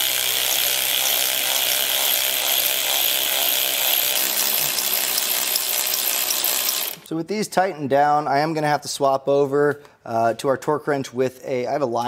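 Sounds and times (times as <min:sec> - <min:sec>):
cordless power tool whirring: 0:00.0 - 0:07.1.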